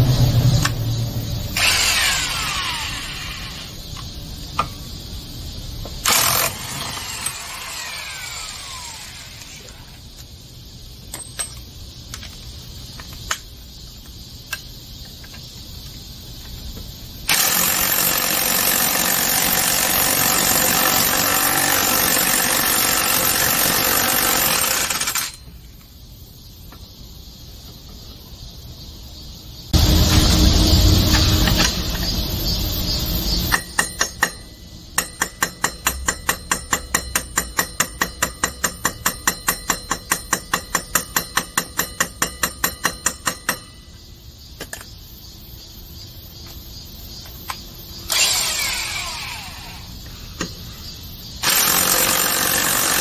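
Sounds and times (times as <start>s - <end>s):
impact wrench hammering: 33.5s - 43.7s.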